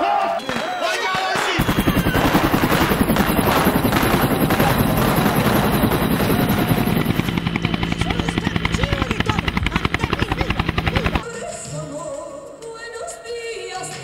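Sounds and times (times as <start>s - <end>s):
helicopter engine noise: 1.6s - 11.2s
helicopter rotor beat: 1.6s - 11.4s.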